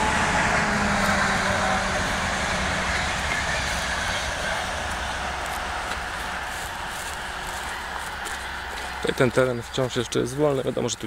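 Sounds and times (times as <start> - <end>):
train wheels rolling on rails: 0.0 - 11.0.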